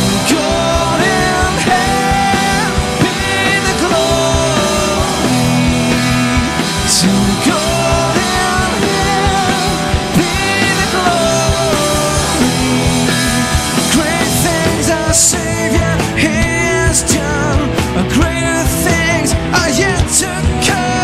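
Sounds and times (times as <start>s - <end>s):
live rock band playing: 0.0s - 21.0s.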